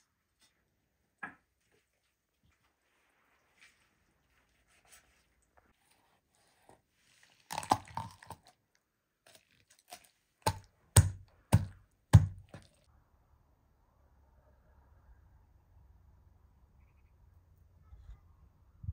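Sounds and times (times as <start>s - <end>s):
crunch of chicken bone: 7.4s - 8.6s
knife chopping on wooden board: 10.5s - 12.8s.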